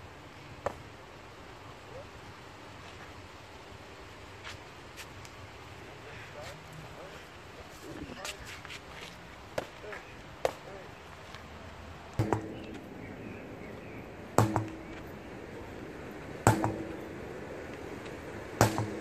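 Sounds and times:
sledgehammer thudding on tyre: 0:12.2 - 0:12.8, 0:14.3 - 0:15.0, 0:16.4 - 0:17.1, 0:18.6 - 0:19.0
punches smacking focus mitts: 0:18.6 - 0:19.0.

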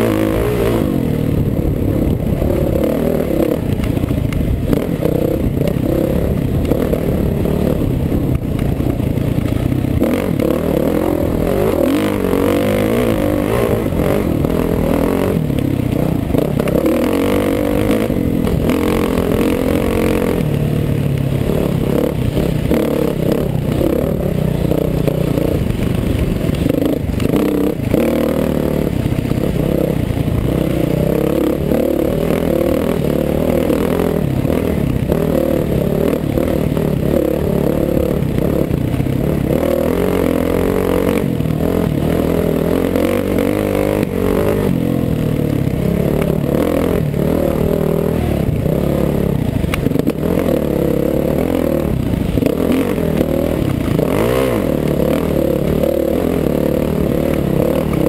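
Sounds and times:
bike rattling: 0:00.0 - 0:58.0
dirt bike engine revving: 0:00.0 - 0:58.0
wind noise on microphone: 0:00.2 - 0:10.4.

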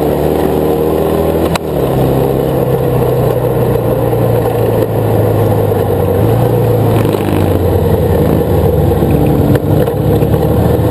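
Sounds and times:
buggy engine running hard: 0:00.0 - 0:10.9
wind: 0:00.0 - 0:10.9.

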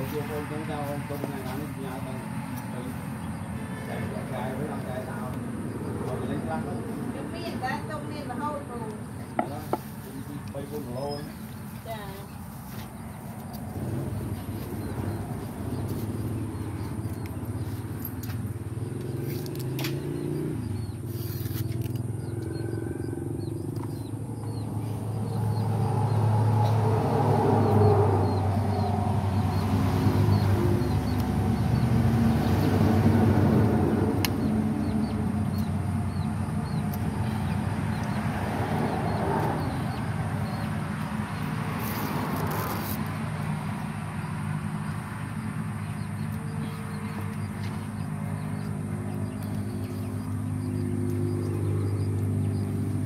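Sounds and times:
low engine-like hum: 0:00.0 - 0:53.0
low motor drone: 0:13.0 - 0:53.0.

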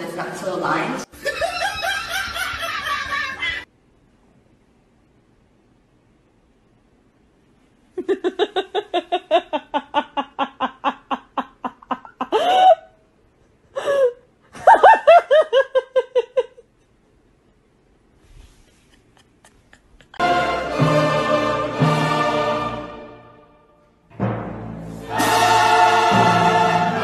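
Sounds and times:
woman laughing hard: 0:01.1 - 0:03.7, 0:08.0 - 0:13.0, 0:13.8 - 0:16.9, 0:18.7 - 0:20.2
orchestral music with timpani: 0:20.2 - 0:27.0.

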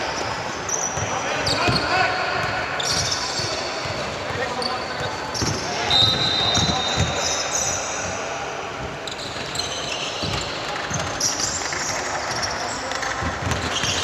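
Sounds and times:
high shoe squeaks: 0:00.0 - 0:02.1, 0:02.7 - 0:08.3, 0:09.0 - 0:14.0
basketball bouncing thumps: 0:03.8 - 0:07.2.

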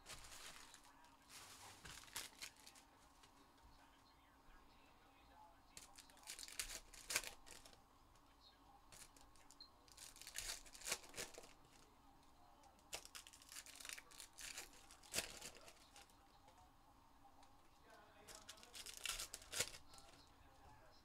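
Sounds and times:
wrappers crinkling and tearing: 0:00.0 - 0:02.9, 0:05.8 - 0:07.8, 0:08.9 - 0:11.8, 0:12.7 - 0:16.1, 0:18.2 - 0:20.2.

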